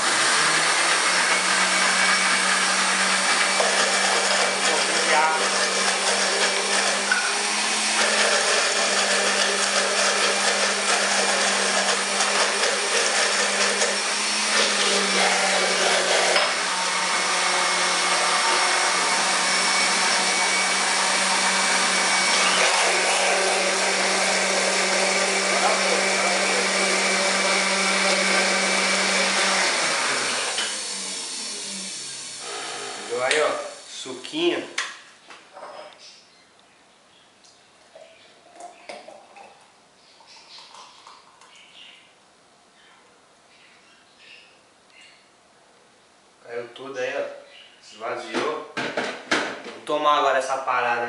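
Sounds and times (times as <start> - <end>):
blender motor running: 0.0 - 34.1.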